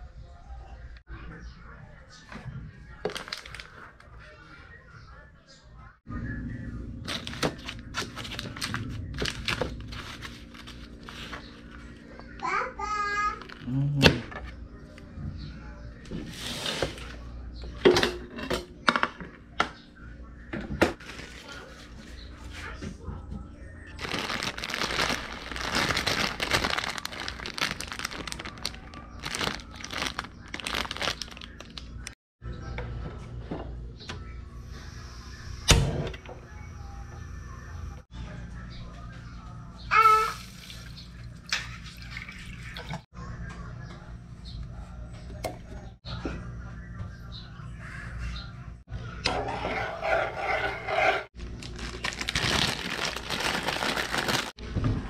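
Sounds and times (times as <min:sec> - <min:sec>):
plastic packet crinkling: 0:03.1 - 0:03.9, 0:07.1 - 0:11.4, 0:24.0 - 0:32.2, 0:51.4 - 0:54.6.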